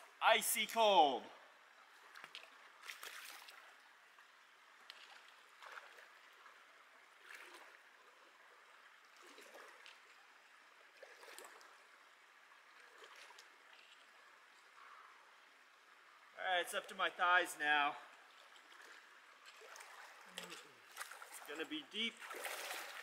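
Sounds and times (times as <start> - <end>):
rush of flooded creek: 0.0 - 23.0
splashes of person wading: 1.9 - 3.8, 4.8 - 8.3, 9.0 - 14.8, 18.1 - 23.0.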